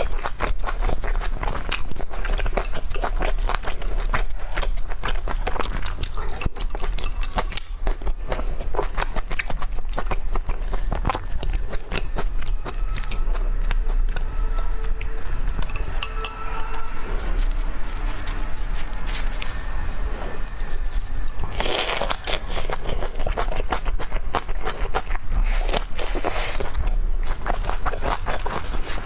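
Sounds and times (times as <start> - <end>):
steady low hum: 0.0 - 29.0
chopsticks handling food: 8.9 - 29.0.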